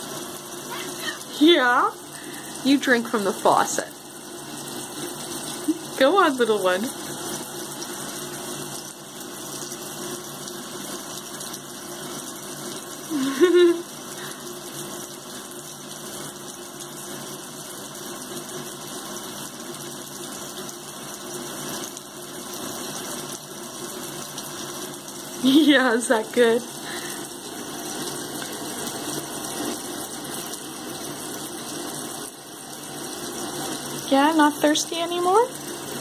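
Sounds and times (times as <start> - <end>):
faucet water running into sink: 0.0 - 36.0
short voiced sound: 0.7 - 1.3.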